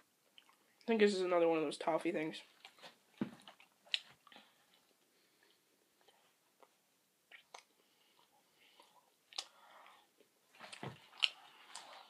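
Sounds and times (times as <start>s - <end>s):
person chewing candy: 0.2s - 0.8s, 3.4s - 12.0s.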